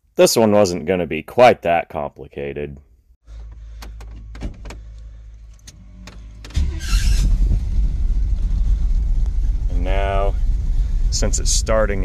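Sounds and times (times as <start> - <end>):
man talking: 0.2 - 2.8, 9.7 - 10.4, 11.1 - 12.0
steady low hum: 3.3 - 12.0
ignition clicks: 3.4 - 8.6
truck engine running unevenly: 4.8 - 12.0.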